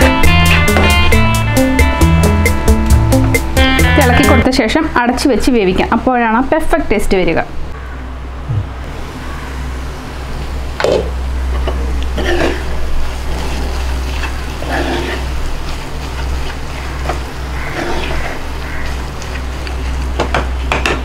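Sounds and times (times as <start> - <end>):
steady low hum: 5.8 - 20.8
wooden spatula scraping a pan: 12.2 - 20.0.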